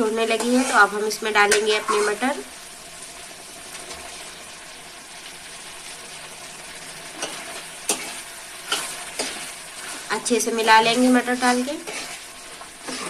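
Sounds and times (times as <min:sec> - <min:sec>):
gravy sizzling in frying pan: 0:00.0 - 0:13.0
spoon scraping pan: 0:00.1 - 0:02.4, 0:07.2 - 0:13.0.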